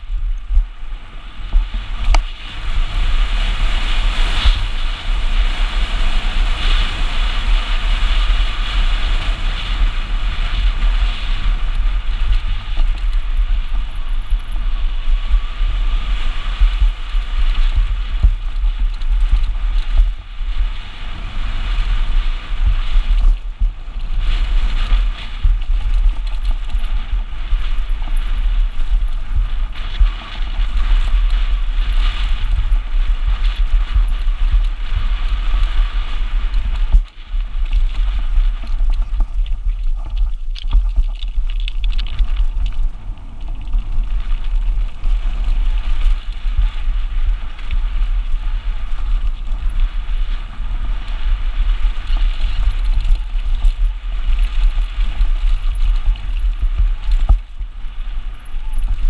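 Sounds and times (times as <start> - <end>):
bike rattling: 0.0 - 59.0
wind buffeting microphone: 0.0 - 59.0
bike tyres clattering on rocks: 21.6 - 59.0.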